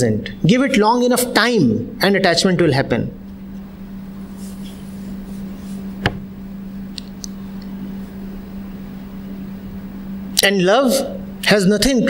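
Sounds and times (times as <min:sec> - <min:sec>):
low hum: 0:03.0 - 0:10.4.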